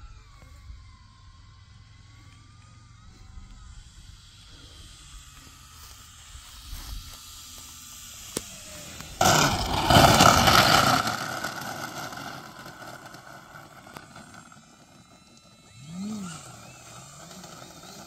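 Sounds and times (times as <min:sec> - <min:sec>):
electric motor and propeller whine: 0:00.0 - 0:18.0
rush of air: 0:09.2 - 0:14.6.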